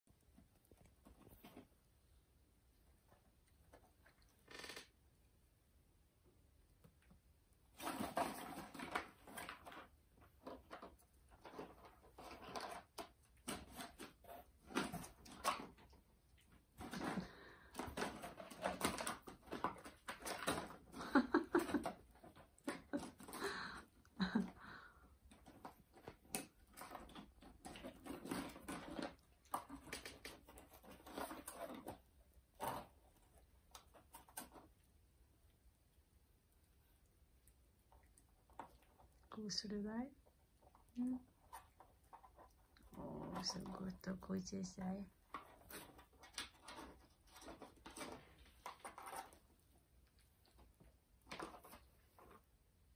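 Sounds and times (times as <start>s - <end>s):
cardboard rustling and scraping: 7.7s - 16.0s, 25.4s - 34.7s, 45.2s - 49.8s.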